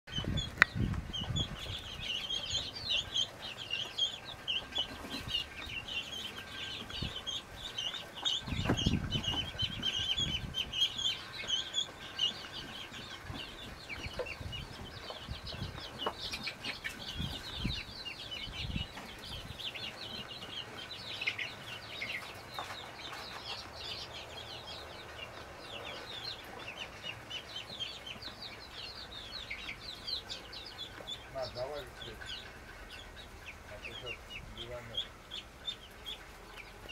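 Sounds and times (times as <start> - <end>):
ducklings peeping: 0.1 - 36.9.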